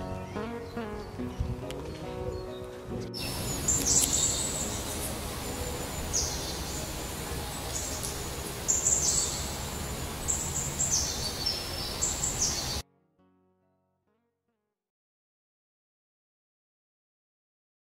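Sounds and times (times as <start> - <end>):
songbirds chirping: 0.0 - 12.8.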